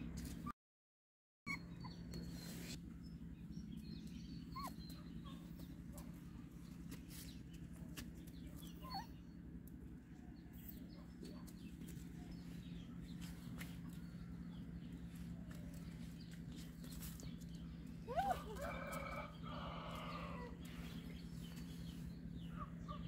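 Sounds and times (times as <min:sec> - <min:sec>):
faint animal squeaks: 0:01.5 - 0:02.4, 0:04.5 - 0:05.4, 0:08.7 - 0:09.2
steady low hum: 0:01.6 - 0:23.0.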